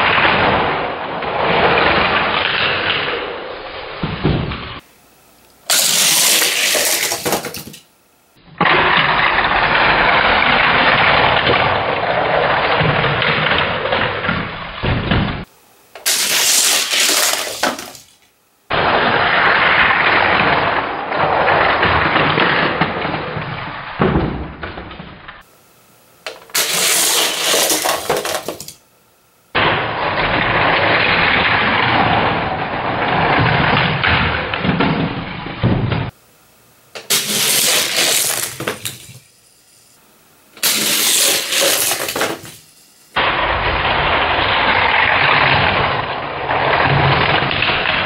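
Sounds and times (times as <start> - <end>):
toy cars rattling down plastic track: 5.7 - 7.8, 16.0 - 18.1, 26.3 - 28.8, 37.0 - 39.2, 40.6 - 42.6.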